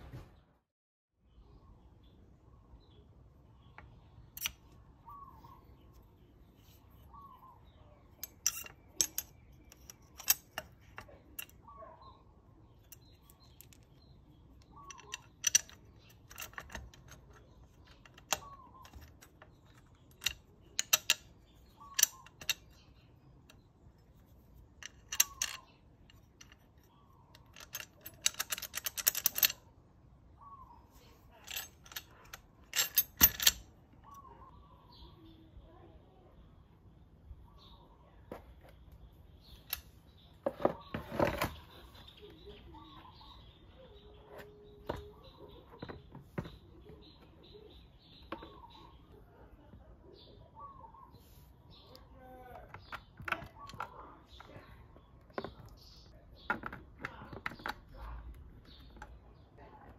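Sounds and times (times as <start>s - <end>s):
metal parts clinking: 4.3s - 4.8s, 8.1s - 11.6s, 12.7s - 29.6s, 31.4s - 34.3s.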